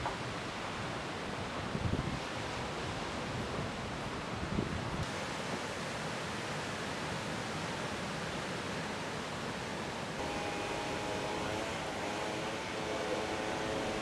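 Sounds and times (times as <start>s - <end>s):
droning engine: 10.2s - 14.0s.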